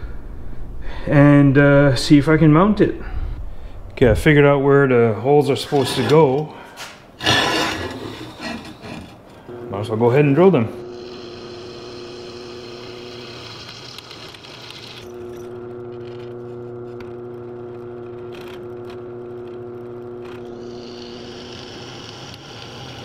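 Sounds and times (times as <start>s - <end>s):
electric drill boring through metal: 10.8s - 16.3s, 20.4s - 23.0s.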